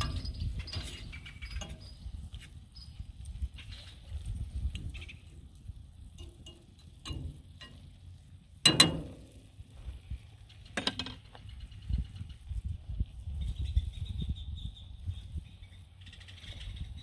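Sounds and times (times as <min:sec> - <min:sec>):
skillet clanking on metal grate: 0:06.2 - 0:07.9, 0:08.6 - 0:09.4.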